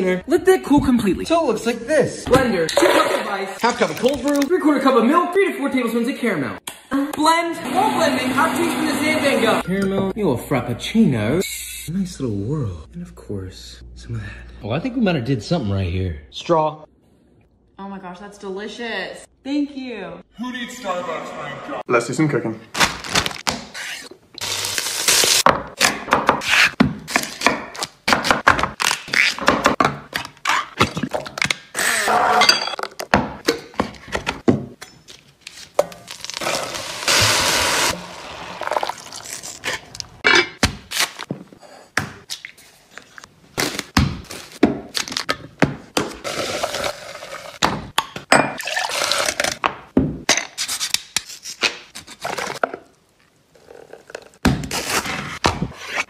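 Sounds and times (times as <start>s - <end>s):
vegetables sizzling in pot: 36.1s - 39.6s.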